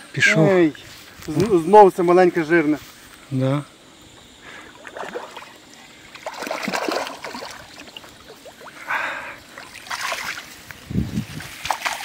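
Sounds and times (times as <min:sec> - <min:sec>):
fish splashing in water: 0:04.7 - 0:10.6, 0:11.6 - 0:12.0.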